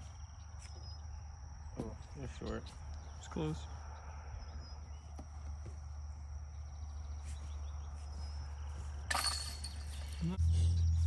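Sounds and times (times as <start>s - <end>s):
disc golf putt striking chains: 9.0s - 10.4s.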